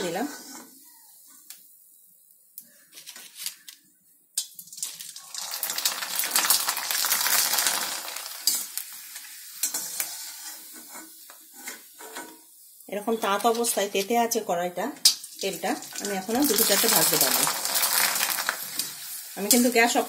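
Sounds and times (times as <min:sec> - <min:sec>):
hot oil sizzling: 0:04.4 - 0:20.0.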